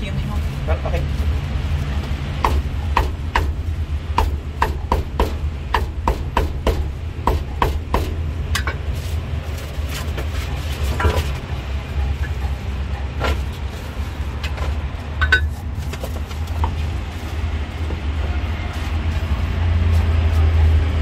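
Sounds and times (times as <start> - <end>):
cleaver chopping on wooden block: 2.4 - 3.6, 4.2 - 8.2.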